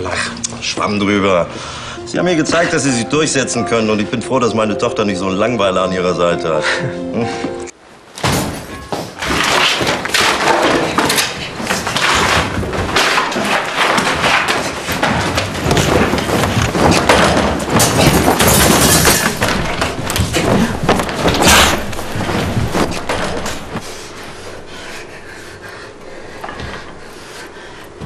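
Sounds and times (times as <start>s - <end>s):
furniture thuds bangs and crashes: 8.2s - 23.8s.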